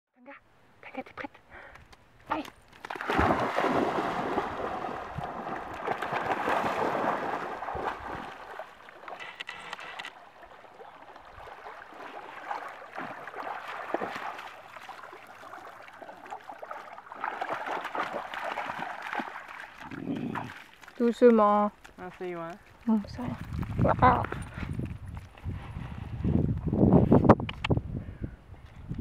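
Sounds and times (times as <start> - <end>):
water sloshing and lapping: 2.7 - 26.3
dogs splashing in water: 2.8 - 9.2, 10.3 - 24.5.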